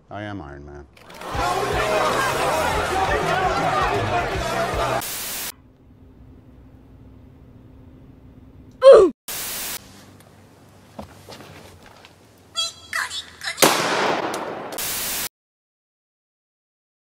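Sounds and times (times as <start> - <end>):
static bursts: 4.9 - 5.5, 9.3 - 9.9, 14.7 - 15.3
high-pitched girl's voice squealing: 8.8 - 9.2, 12.6 - 13.7
gunshot: 13.6 - 15.3.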